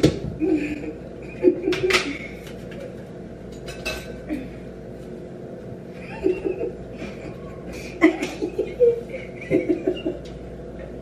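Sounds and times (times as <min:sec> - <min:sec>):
utensils and dishes clinking: 0:01.7 - 0:04.2.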